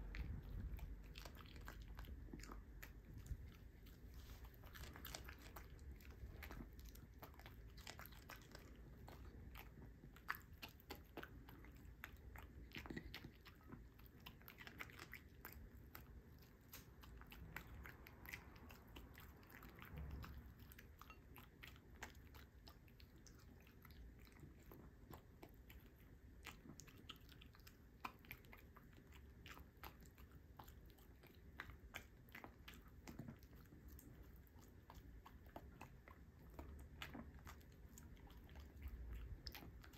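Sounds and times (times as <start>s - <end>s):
dog crunching vegetables: 0.0s - 39.9s.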